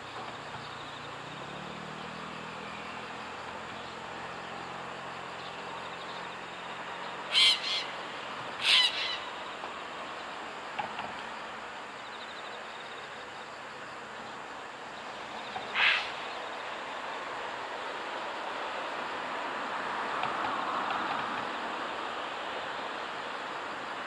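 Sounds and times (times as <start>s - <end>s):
steady background hiss: 0.0s - 24.0s
kingfisher shrill calls: 7.3s - 8.0s, 8.6s - 9.4s, 15.7s - 16.3s.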